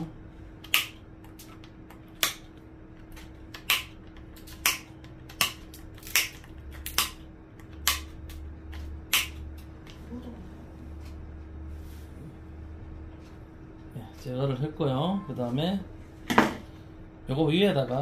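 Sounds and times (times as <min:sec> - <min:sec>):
metal cutters snipping: 0:03.1 - 0:09.6.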